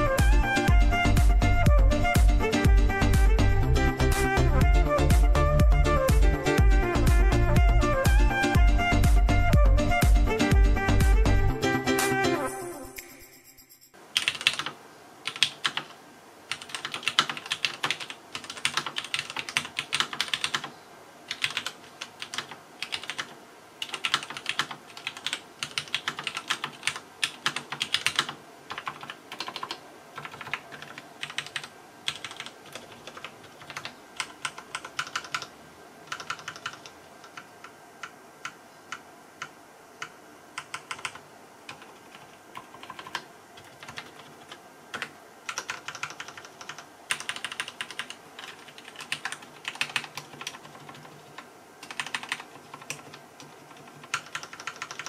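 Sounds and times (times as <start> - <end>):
mechanical keyboard typing: 14.2 - 20.7, 21.3 - 35.5, 36.1 - 55.0.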